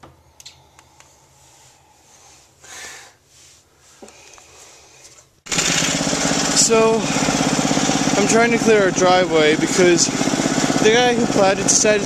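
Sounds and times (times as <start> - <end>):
snowblower engine running: 5.5 - 12.0.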